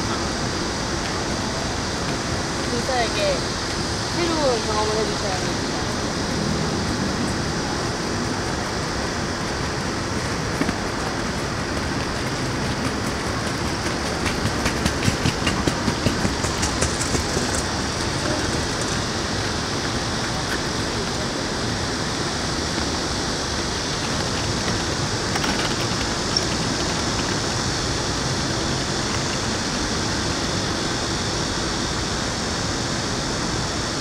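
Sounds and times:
city hum: 0:00.0 - 0:34.0
cart wheels clattering on paving: 0:09.5 - 0:21.4, 0:22.2 - 0:29.8.

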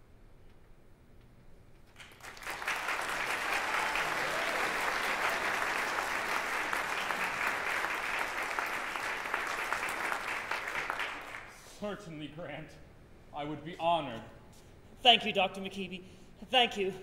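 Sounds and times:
audience applauding: 0:01.9 - 0:11.7.

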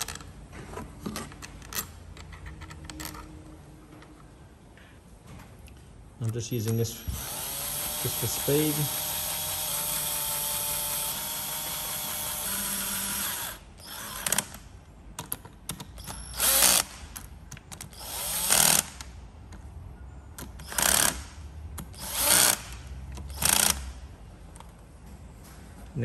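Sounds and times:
cordless drill driving bolts: 0:07.0 - 0:14.6, 0:16.0 - 0:17.0, 0:17.8 - 0:19.1, 0:20.6 - 0:24.0.

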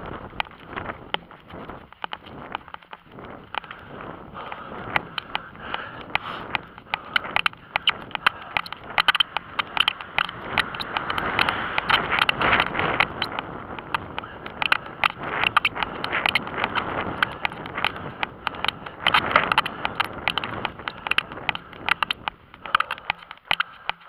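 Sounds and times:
wind on microphone: 0:00.0 - 0:24.0
camera clicks and knocks: 0:06.0 - 0:24.0.

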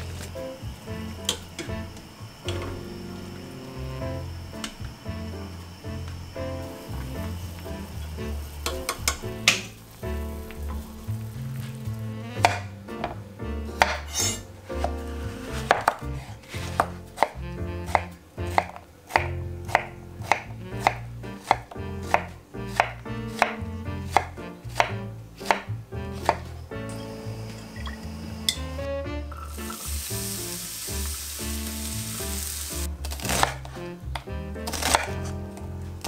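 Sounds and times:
knife chopping on wooden board: 0:13.8 - 0:26.5, 0:33.0 - 0:35.3.

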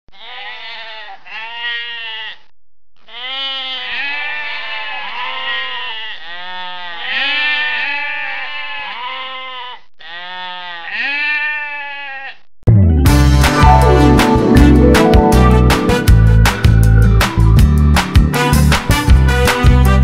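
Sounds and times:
sheep and lambs bleating: 0:00.1 - 0:12.5.

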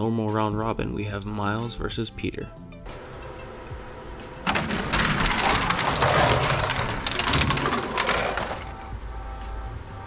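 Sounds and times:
plastic toy cars rattling on track: 0:04.5 - 0:08.9.

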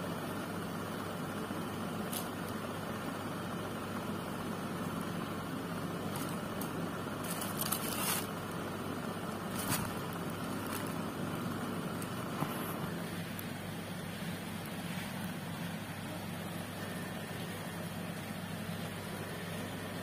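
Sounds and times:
low background hum: 0:00.0 - 0:20.0
plastic wrapping crinkling: 0:06.0 - 0:08.4, 0:09.4 - 0:12.8.

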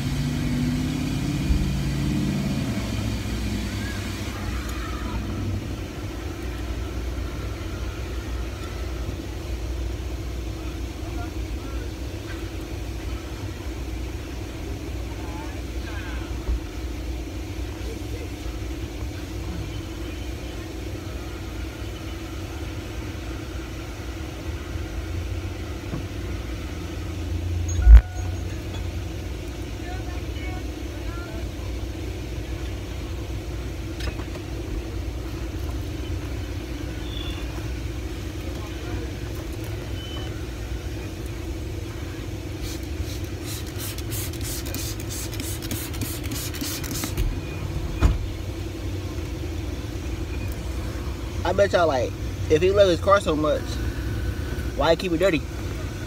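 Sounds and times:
truck engine idling: 0:00.0 - 0:56.0
spray bottle hissing: 0:42.6 - 0:47.3
thump: 0:48.0 - 0:48.3.

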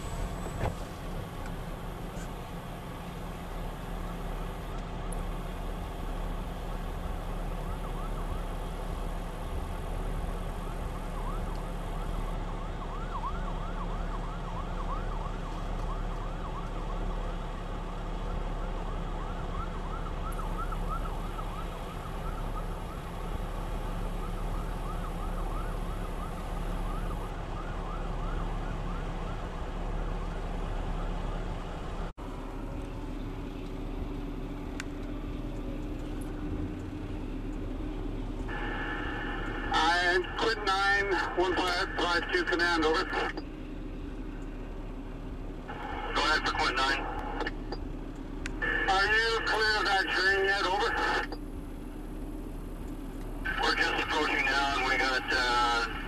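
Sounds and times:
fire truck sirens yelping: 0:00.0 - 0:56.0
steady low rumble: 0:29.5 - 0:56.0.

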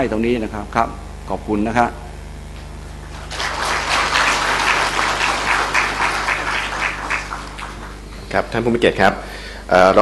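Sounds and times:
audience applauding: 0:03.1 - 0:08.1.

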